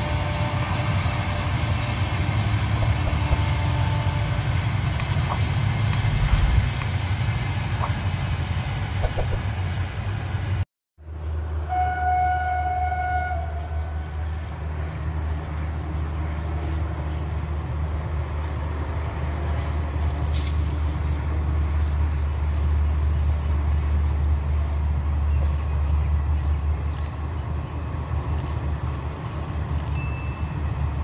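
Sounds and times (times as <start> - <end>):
train horn: 0.0 - 4.7, 11.6 - 14.4
train rumbling past: 0.0 - 31.0.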